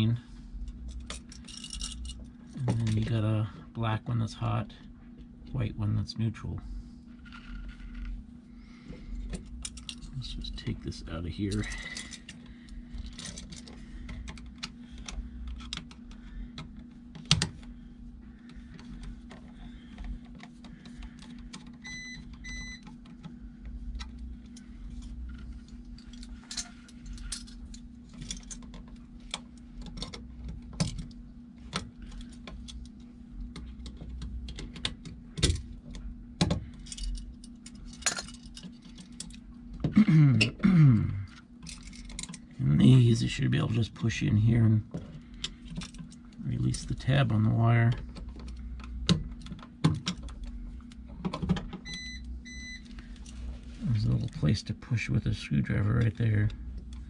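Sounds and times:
steady low hum: 0.0s - 57.0s
battery backup beeps: 21.8s - 22.8s, 51.8s - 52.9s.

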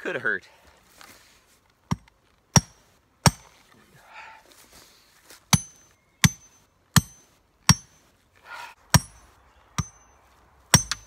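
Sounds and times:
sledgehammer striking metal rod: 2.6s - 3.5s, 5.5s - 8.0s, 8.9s - 10.1s, 10.7s - 11.0s.

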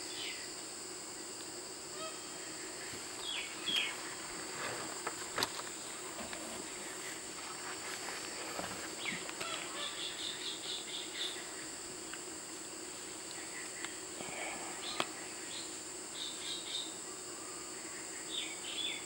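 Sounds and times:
insect drone: 0.0s - 19.0s
bird calls: 2.0s - 4.3s, 8.8s - 11.7s.

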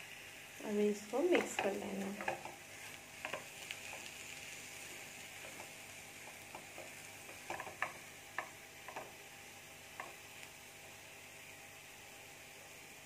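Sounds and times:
faint sizzle in pan: 0.0s - 13.0s.

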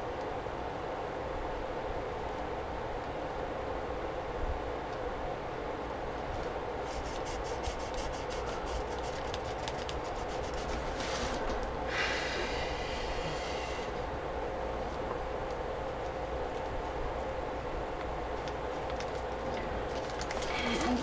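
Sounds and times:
room hum: 0.0s - 21.0s
marker scratching on paper: 6.8s - 11.4s.

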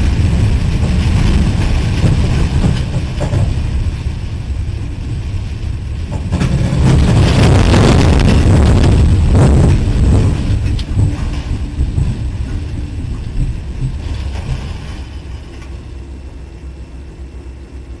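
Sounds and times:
tornado winds rushing and rumbling: 0.0s - 18.0s.

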